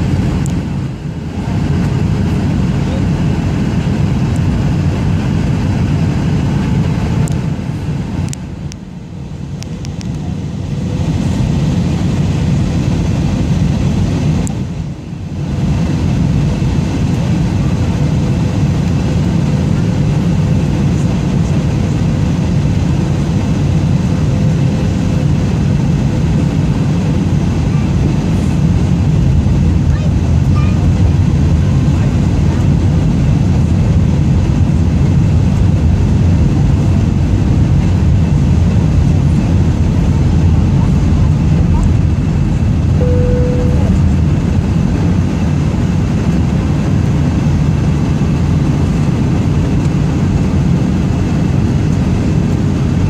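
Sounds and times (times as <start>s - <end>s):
jet engines and airflow rumble: 0.0s - 53.0s.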